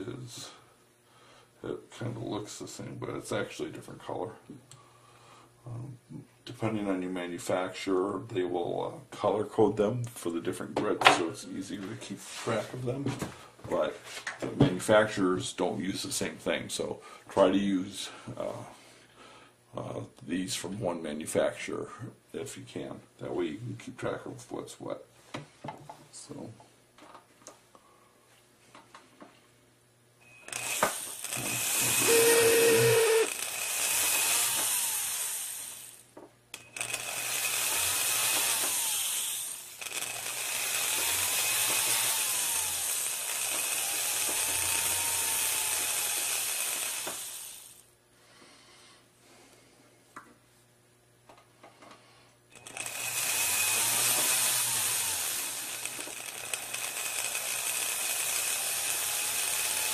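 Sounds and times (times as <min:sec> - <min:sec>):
rotary tool grinding metal: 0:30.4 - 0:36.0, 0:36.6 - 0:47.8, 0:52.5 - 0:59.9.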